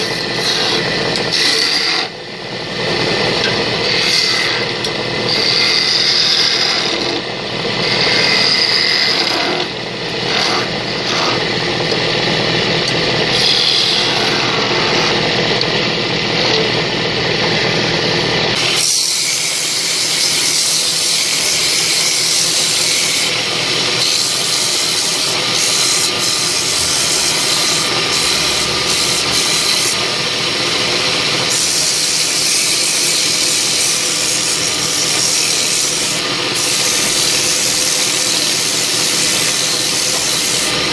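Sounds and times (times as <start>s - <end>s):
wood lathe running: 0.0s - 40.9s
turning tool cutting wood hiss: 13.3s - 14.6s, 18.6s - 30.4s, 31.1s - 40.8s.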